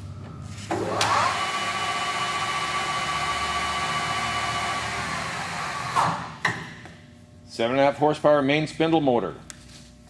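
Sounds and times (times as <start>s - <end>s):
lathe gear whine: 0.8s - 6.0s.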